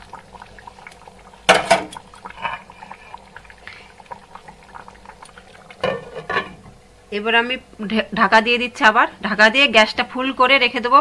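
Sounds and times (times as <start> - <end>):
curry bubbling at a simmer: 0.0 - 7.2.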